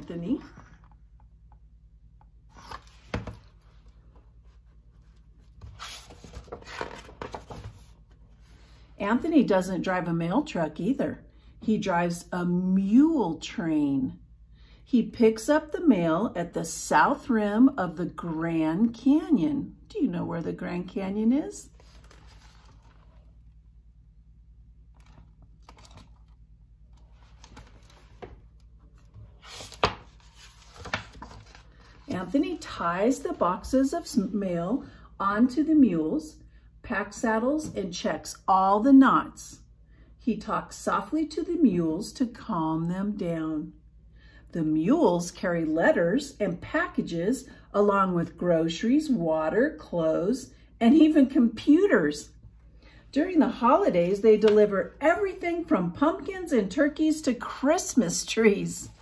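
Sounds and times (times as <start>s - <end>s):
low steady hum: 0.0s - 59.0s
paper page rustling: 2.5s - 8.2s, 21.7s - 23.4s, 24.9s - 32.2s.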